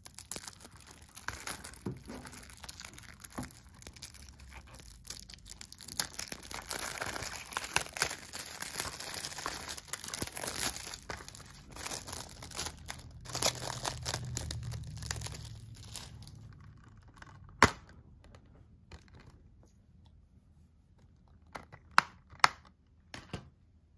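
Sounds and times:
plastic wrap crinkling: 0.0 - 17.6.

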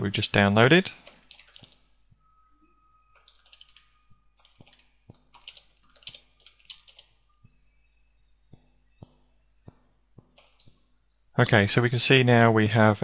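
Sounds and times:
faint keyboard typing: 0.6 - 1.9, 3.1 - 7.6, 8.5 - 12.8.

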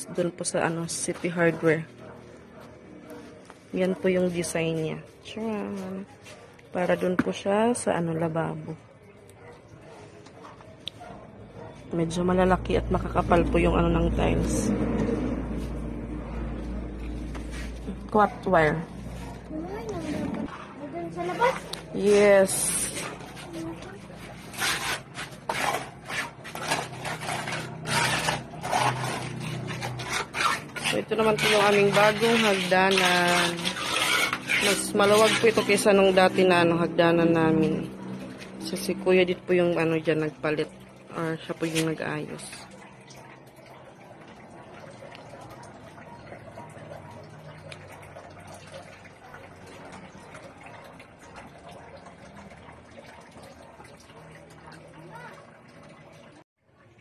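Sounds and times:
water splashing in a basin: 12.0 - 57.0
hand tool scraping cement: 22.0 - 36.1.

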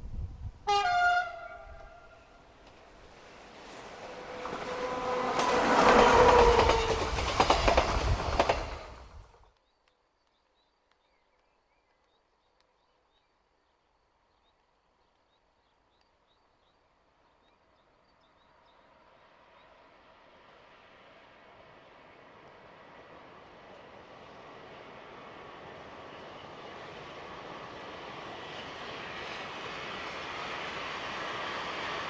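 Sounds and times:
train wheels clattering over rail joints: 5.3 - 9.0.

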